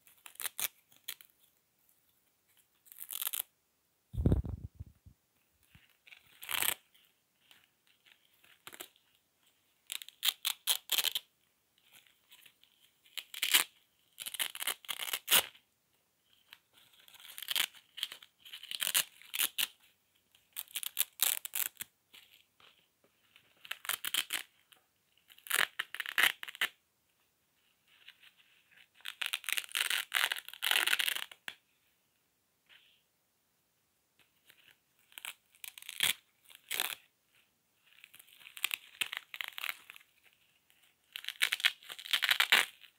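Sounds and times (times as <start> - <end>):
velcro strips ripping apart: 0.0 - 1.3, 2.8 - 3.5, 4.2 - 4.9, 6.1 - 6.8, 8.5 - 8.9, 9.9 - 11.3, 13.1 - 15.5, 17.0 - 19.8, 20.6 - 21.9, 23.6 - 24.7, 25.3 - 26.8, 29.0 - 31.5, 34.6 - 37.1, 37.9 - 40.2, 41.0 - 42.9.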